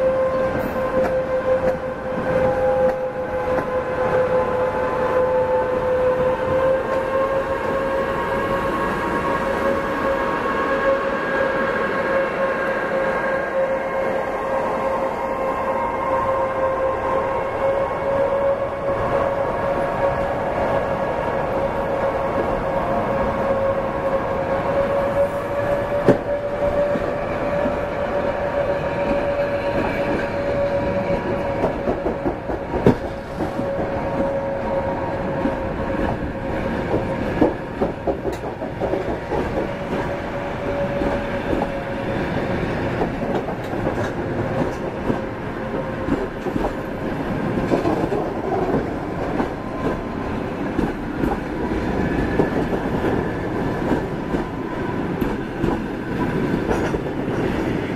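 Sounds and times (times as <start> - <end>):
train wheels clicking over rail joints: 35.4 - 41.8, 42.4 - 45.3, 46.0 - 57.8.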